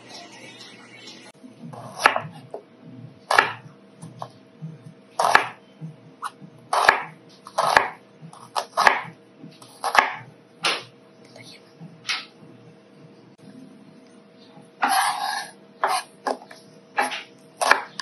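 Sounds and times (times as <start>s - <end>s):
knife slicing onion on cutting board: 1.7s - 2.6s, 3.3s - 4.3s, 5.2s - 5.6s, 6.2s - 10.9s, 14.8s - 18.0s.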